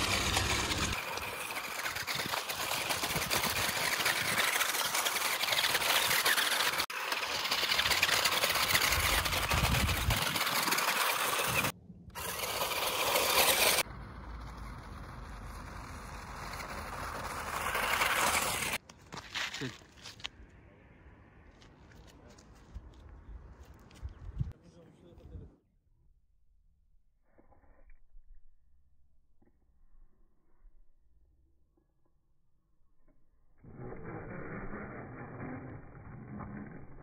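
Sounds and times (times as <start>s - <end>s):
tyres scrabbling on stones: 0.0s - 13.8s
toy car motors whirring: 0.0s - 18.8s.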